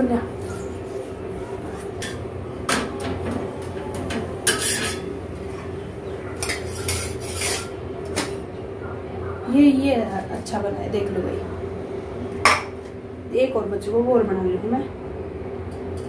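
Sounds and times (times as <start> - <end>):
steady hum: 0.0 - 16.0
metal spatula scraping a pan: 4.5 - 5.0, 6.4 - 7.8.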